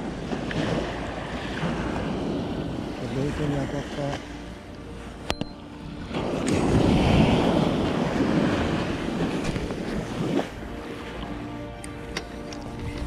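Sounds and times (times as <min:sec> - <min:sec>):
surf washing up a beach: 0:00.0 - 0:11.8
wind buffeting microphone: 0:04.9 - 0:13.0.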